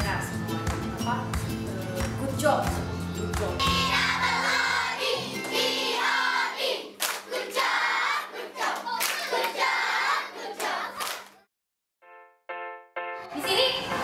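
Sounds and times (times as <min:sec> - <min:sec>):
background music: 0:00.0 - 0:08.6, 0:12.0 - 0:14.0
children singing in unison: 0:03.6 - 0:11.0
children clapping: 0:07.0 - 0:07.4, 0:08.6 - 0:09.7, 0:10.4 - 0:11.4.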